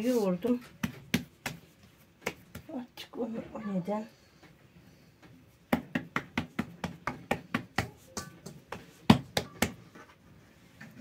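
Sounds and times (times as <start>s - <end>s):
hand slapping dough: 0.0s - 2.9s, 5.5s - 10.0s.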